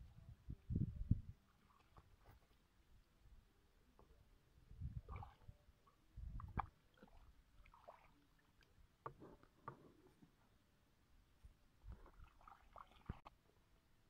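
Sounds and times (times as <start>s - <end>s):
water sloshing: 1.5s - 2.7s, 4.9s - 10.3s, 11.9s - 13.4s.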